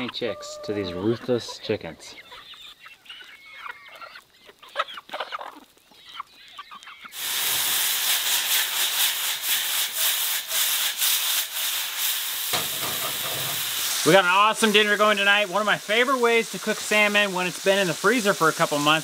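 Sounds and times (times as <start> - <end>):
chickens clucking: 0.0 - 7.2, 12.6 - 14.1
mushrooms sizzling in a skillet: 6.4 - 19.0.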